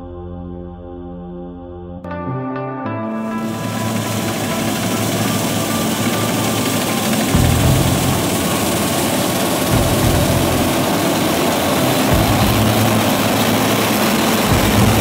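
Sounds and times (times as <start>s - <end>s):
combine harvester running: 3.4s - 15.0s.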